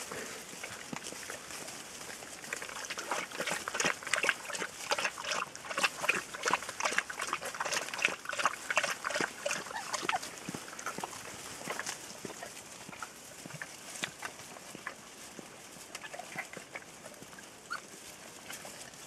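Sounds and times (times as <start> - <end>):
puppies squeaking and whining: 9.5 - 10.3, 16.0 - 18.7.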